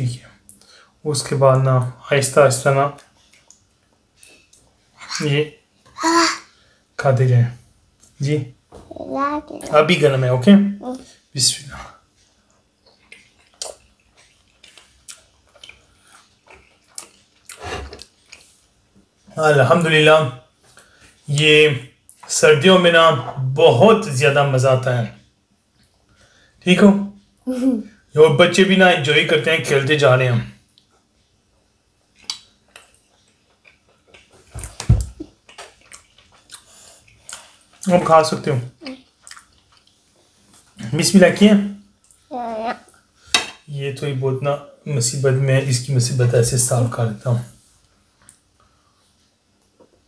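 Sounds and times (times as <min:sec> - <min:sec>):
chewing: 0:03.0 - 0:04.8, 0:12.2 - 0:18.6, 0:30.7 - 0:37.9, 0:38.8 - 0:40.8.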